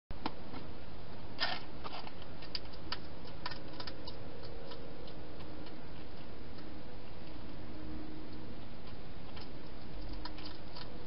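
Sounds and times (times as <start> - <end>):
hedgehog eating clicks and crunches: 1.8 - 7.6, 8.8 - 11.0.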